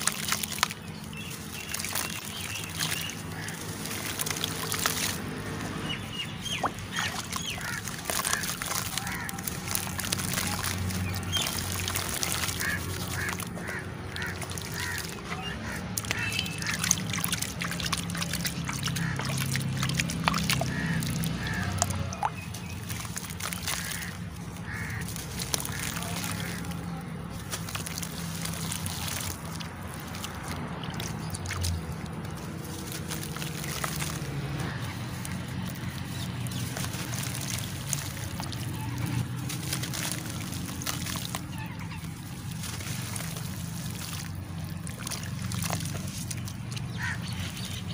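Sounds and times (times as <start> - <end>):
water sloshing and splashing: 0.0 - 47.9
charcoal crumbling: 7.6 - 16.2, 18.1 - 47.2.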